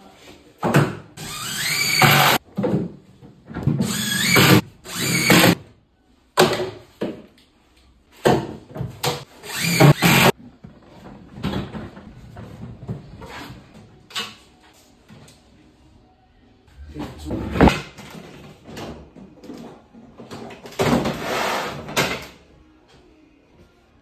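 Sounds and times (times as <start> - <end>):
cordless drill motor bursts: 1.2 - 2.4, 3.9 - 5.6, 9.5 - 10.3.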